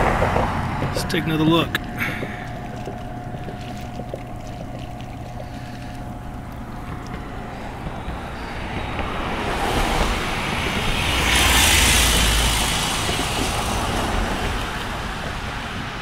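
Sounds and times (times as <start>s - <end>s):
road vehicle passing by: 0.0s - 2.2s, 7.0s - 16.0s.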